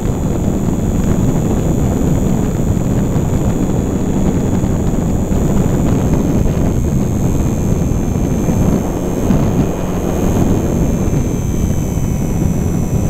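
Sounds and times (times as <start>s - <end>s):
electric motor whine: 0.0s - 13.0s
wind buffeting microphone: 0.0s - 13.0s.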